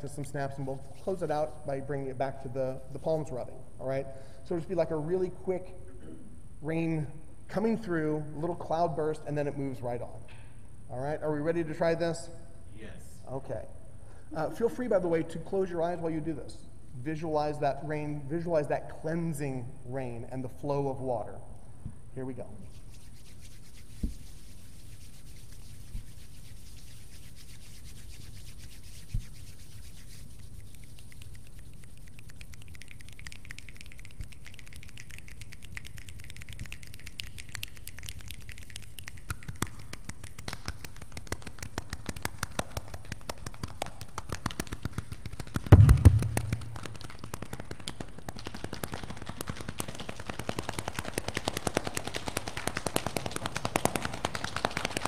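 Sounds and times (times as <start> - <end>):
palms rubbing together: 0.0 - 3.6, 22.4 - 55.0
light clapping: 39.3 - 55.0
heavy thump: 45.7 - 46.8.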